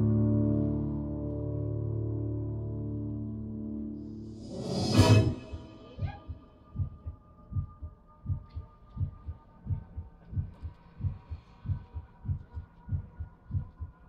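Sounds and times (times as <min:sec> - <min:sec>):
faint steady drone: 0:00.0 - 0:14.0
slow heartbeat-like drum beat: 0:05.0 - 0:14.0.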